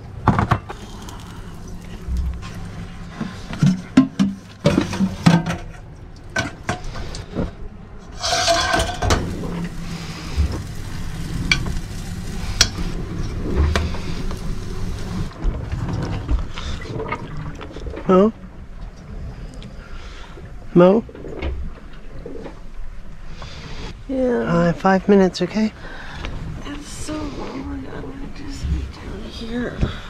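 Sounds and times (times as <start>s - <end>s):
utensils clinking: 8.1s - 9.8s
batter sizzling in a pan: 8.2s - 15.3s.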